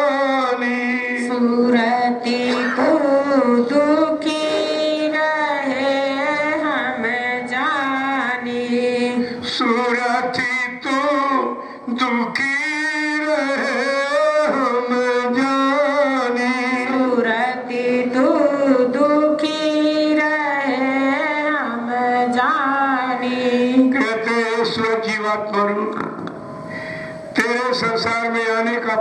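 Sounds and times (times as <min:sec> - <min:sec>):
person singing devotional song: 0:00.0 - 0:29.0
steady held drone note: 0:02.2 - 0:07.4, 0:26.0 - 0:28.9.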